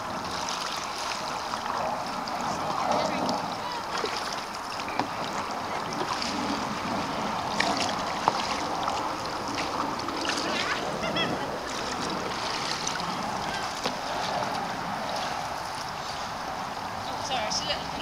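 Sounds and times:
moving water wash: 0.0 - 18.0
paddles splashing in water: 0.0 - 18.0
paddle knocks: 3.9 - 6.3.

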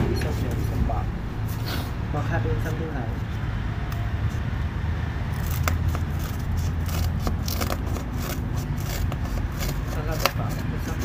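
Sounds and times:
steady low hum: 0.0 - 6.5.

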